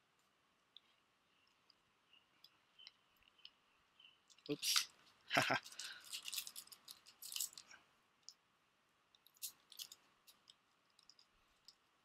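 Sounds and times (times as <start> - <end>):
foil wrappers crinkling: 4.6 - 7.8, 9.4 - 11.2.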